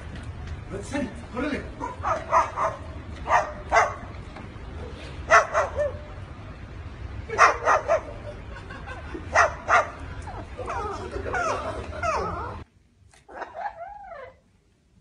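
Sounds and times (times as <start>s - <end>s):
cockatoo barking: 1.8s - 4.1s, 5.3s - 6.1s, 7.3s - 8.2s, 9.3s - 12.6s.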